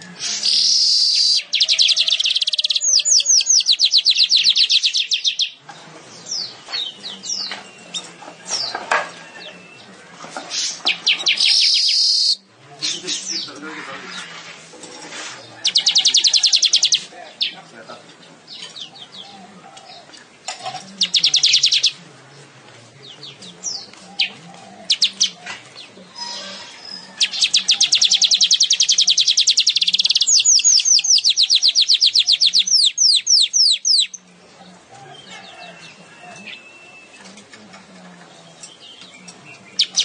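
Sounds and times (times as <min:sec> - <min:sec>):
songbird trilling: 0:00.0 - 0:05.6, 0:10.5 - 0:13.8, 0:15.6 - 0:17.7, 0:21.0 - 0:22.0, 0:23.2 - 0:34.3, 0:38.3 - 0:40.0
bird chirps: 0:00.0 - 0:14.3, 0:15.4 - 0:22.0, 0:23.1 - 0:34.4, 0:35.2 - 0:40.0.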